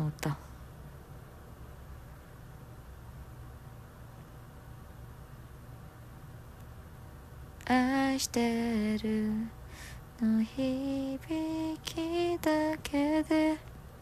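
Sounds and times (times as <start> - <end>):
faint hiss: 0.0 - 14.0
woman singing unaccompanied: 7.6 - 13.7.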